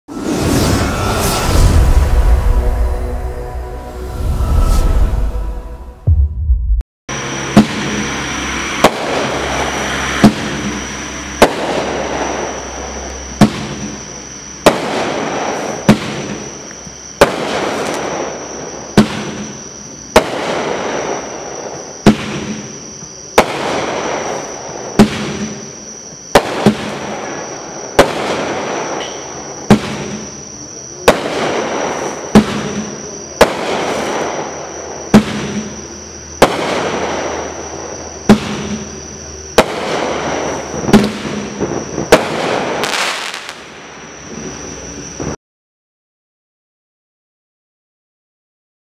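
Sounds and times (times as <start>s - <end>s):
firework bangs: 7.1s - 45.4s
firework fizzing: 39.6s - 44.0s.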